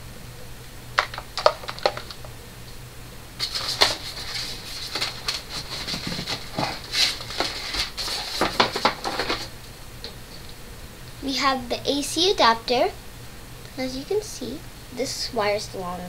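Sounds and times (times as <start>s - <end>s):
packaging crinkling and rustling: 1.0s - 2.3s, 3.4s - 9.6s.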